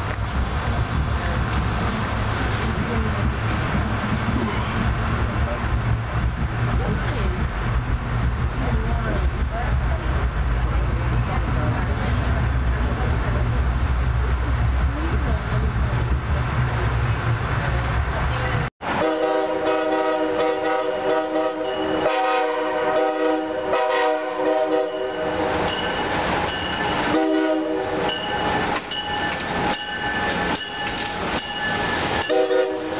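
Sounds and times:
rail noise: 0.0s - 32.9s
train rumbling: 0.0s - 32.9s
multi-note train horn blasts: 18.9s - 25.5s, 27.1s - 28.2s, 32.2s - 32.9s.

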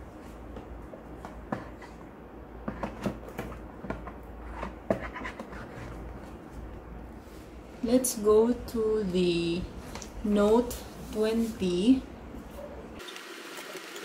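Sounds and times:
low steady hum: 0.0s - 13.0s
cardboard boxes tapping and scraping: 2.6s - 5.8s.

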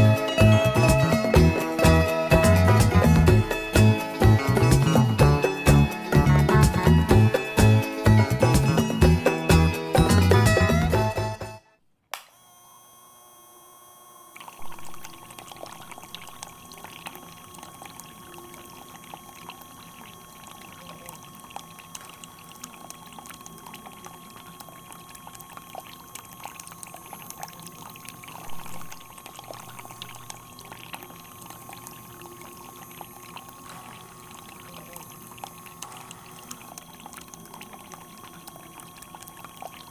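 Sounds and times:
faint motor whine: 0.0s - 39.9s
water pouring and splashing: 14.4s - 39.9s.

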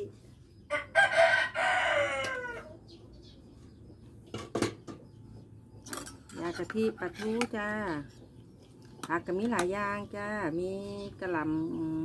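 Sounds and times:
rooster crowing: 0.7s - 2.8s.

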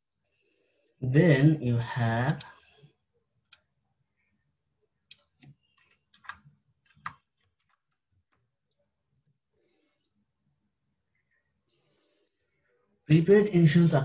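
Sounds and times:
keyboard keys clicking: 5.1s - 8.0s.

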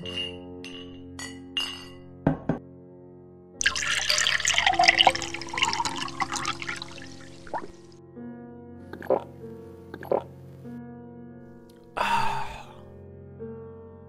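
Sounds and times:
glass clinking: 0.0s - 2.1s, 3.6s - 7.0s
soft background music: 0.0s - 14.0s
liquid pouring into a glass: 3.6s - 7.9s.

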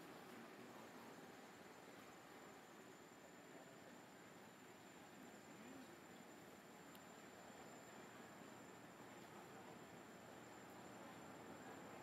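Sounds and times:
faint background hiss: 0.0s - 12.0s.

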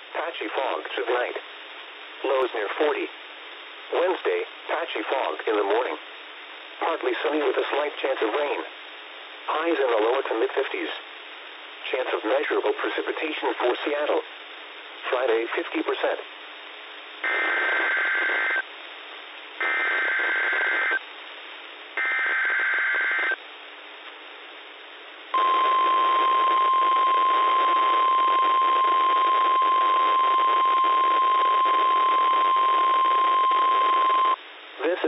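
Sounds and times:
radio hiss: 0.0s - 35.0s
steady alarm tone: 25.4s - 34.4s.

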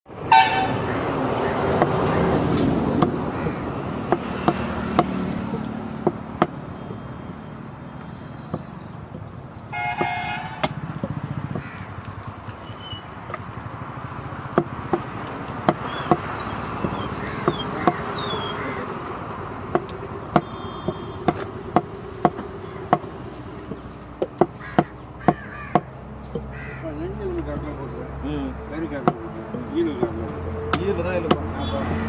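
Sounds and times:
road traffic noise: 0.0s - 32.0s
vehicle horn: 0.2s - 0.9s, 9.7s - 10.8s, 20.2s - 21.6s, 31.6s - 32.0s
cleaver chopping on wooden block: 2.9s - 6.6s, 10.0s - 11.7s, 14.5s - 18.1s, 19.7s - 26.5s, 29.0s - 29.2s, 30.0s - 31.5s.

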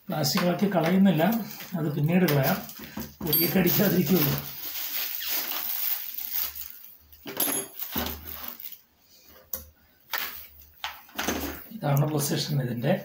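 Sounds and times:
plastic wrapping crinkling: 0.9s - 8.9s.

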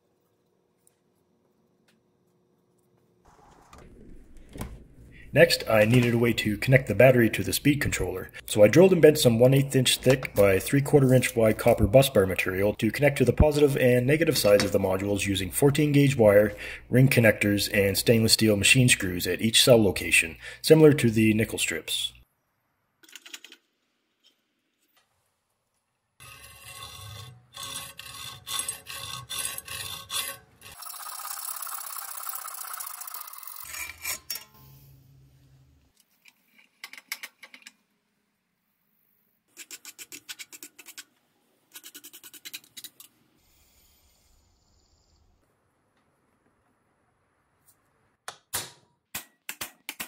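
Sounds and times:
hacksaw rasping through metal: 26.2s - 30.8s.

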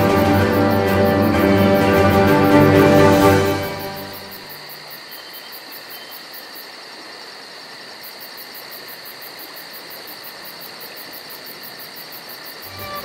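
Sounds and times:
insects chirping in chorus: 0.0s - 13.0s.

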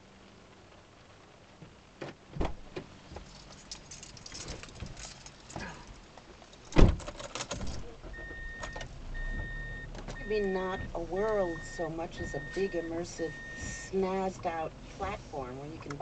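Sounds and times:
clinking and rattling in a car: 2.1s - 16.0s
heavy thump: 2.3s - 2.9s.

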